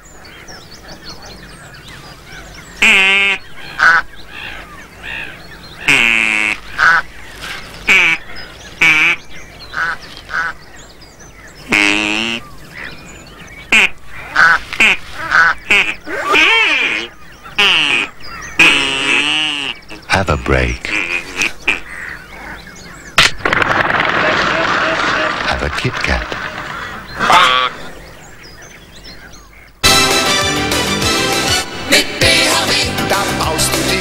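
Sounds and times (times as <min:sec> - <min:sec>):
ducks quacking: 0:00.2 - 0:10.7, 0:11.6 - 0:22.7, 0:23.8 - 0:28.4.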